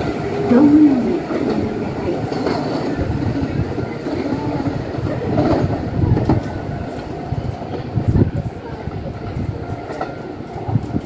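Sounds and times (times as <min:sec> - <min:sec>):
wheels clattering over rail joints: 0:00.0 - 0:07.0
electric train rumble: 0:00.0 - 0:11.0.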